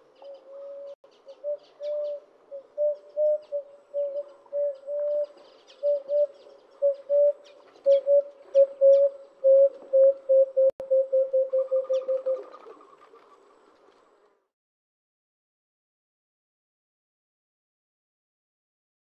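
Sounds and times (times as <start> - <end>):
dove cooing: 0.0 - 13.8
small birds chirping: 0.0 - 14.2.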